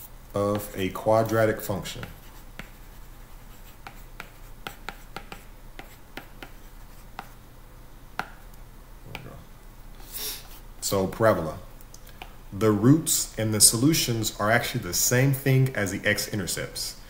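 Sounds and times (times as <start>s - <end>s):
faint low hum: 0.0s - 17.0s
stylus writing on a tablet: 1.5s - 7.4s.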